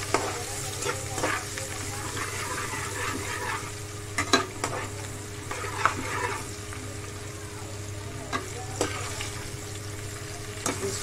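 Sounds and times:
food sizzling in hot oil: 0:00.0 - 0:11.0
metal spatula scraping pan: 0:00.1 - 0:06.5.

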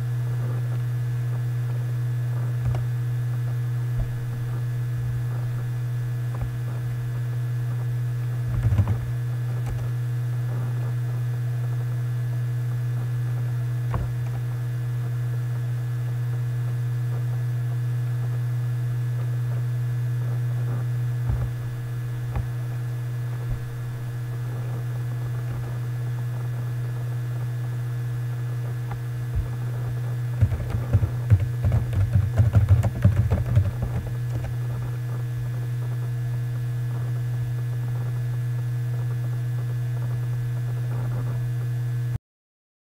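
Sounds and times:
electrical hum: 0:00.0 - 0:42.2
click: 0:02.6 - 0:02.9, 0:08.5 - 0:09.9, 0:13.9 - 0:14.4
computer keyboard typing: 0:08.6 - 0:09.0, 0:30.4 - 0:34.6.

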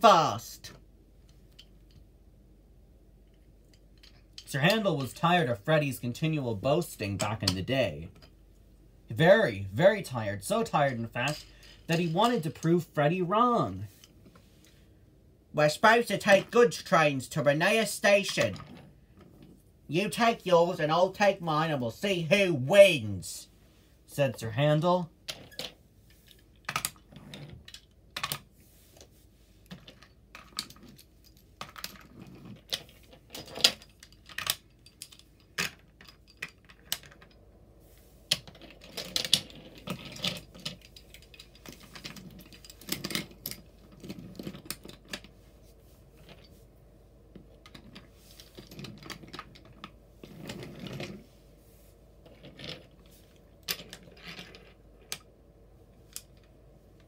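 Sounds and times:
toys rattling and rolling: 0:10.0 - 0:12.9, 0:25.2 - 0:37.5, 0:38.3 - 0:46.6, 0:47.3 - 0:51.4, 0:52.2 - 0:55.3
toy trains clicking and tapping: 0:10.6 - 0:12.8.

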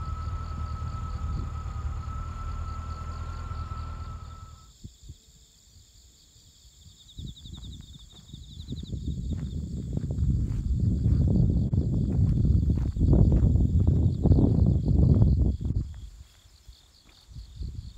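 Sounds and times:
low rumble: 0:00.0 - 0:04.6
faint steady whistle: 0:00.0 - 0:04.8
fast high insect trill: 0:00.0 - 0:04.8
insects chirping: 0:00.0 - 0:17.9.

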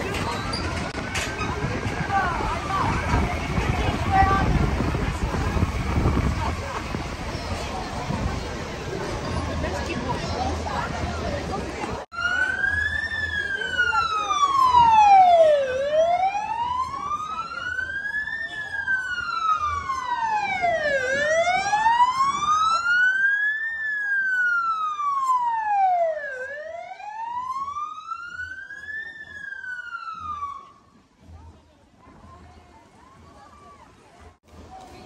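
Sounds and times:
emergency vehicle siren wailing: 0:00.0 - 0:07.2, 0:12.1 - 0:30.9.

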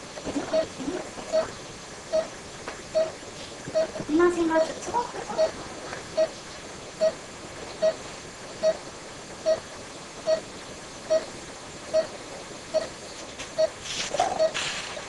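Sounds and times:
steady hiss: 0:00.0 - 0:15.0
pulse oximeter beeping: 0:01.3 - 0:04.0, 0:06.2 - 0:06.4, 0:07.0 - 0:07.2, 0:07.8 - 0:08.0, 0:08.6 - 0:09.6, 0:10.2 - 0:10.5, 0:11.1 - 0:13.0, 0:13.6 - 0:14.6.

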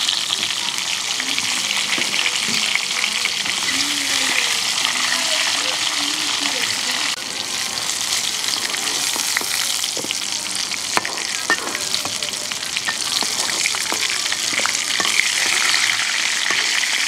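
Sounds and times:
vegetables sizzling in hot oil: 0:00.0 - 0:17.0
steel spatula scraping a pan: 0:11.0 - 0:17.0.

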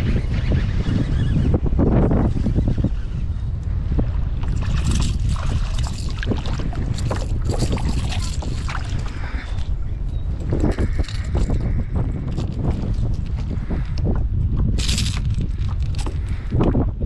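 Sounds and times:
wind rumbling on microphone: 0:00.0 - 0:17.0
water splashing: 0:04.4 - 0:09.7.

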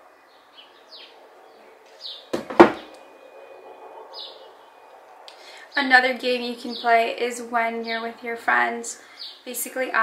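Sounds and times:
door knocking shut: 0:02.3 - 0:02.9.

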